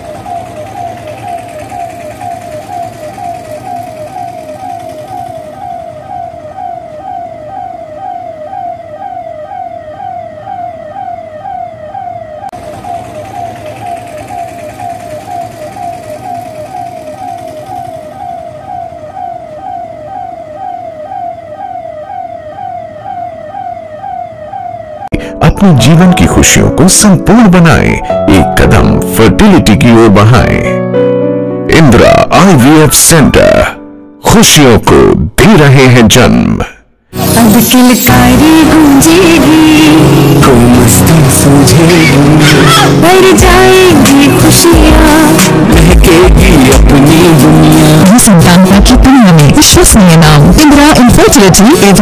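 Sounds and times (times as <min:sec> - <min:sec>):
vehicle engines running: 0:00.0 - 0:08.0, 0:12.5 - 0:20.4, 0:37.2 - 0:52.0
police siren wailing: 0:00.0 - 0:25.2, 0:32.4 - 0:33.8, 0:37.2 - 0:52.0.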